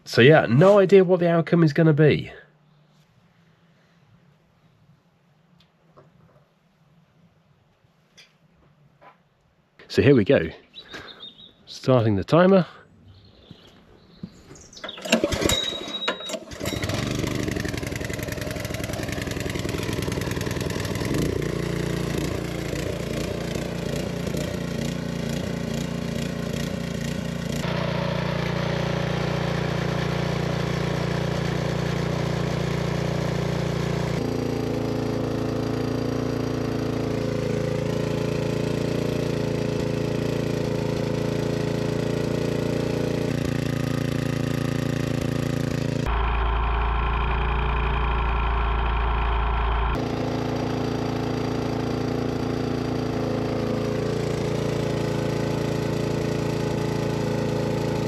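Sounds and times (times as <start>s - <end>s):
small engine starting and running: 14.6s - 58.0s.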